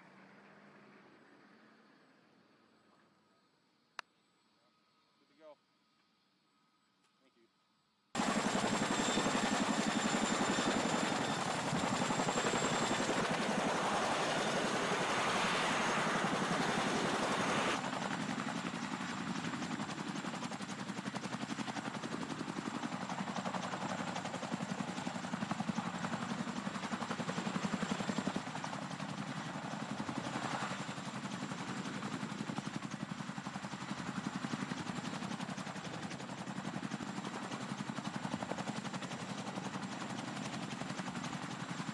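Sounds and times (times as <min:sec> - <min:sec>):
helicopter rotors beating: 0:08.2 - 0:41.9.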